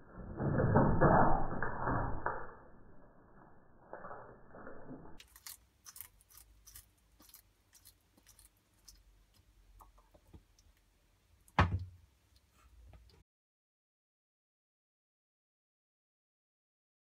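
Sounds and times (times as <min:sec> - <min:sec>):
lizard chewing crunchy insect: 0:05.2 - 0:10.8
loud thump: 0:11.6 - 0:11.9.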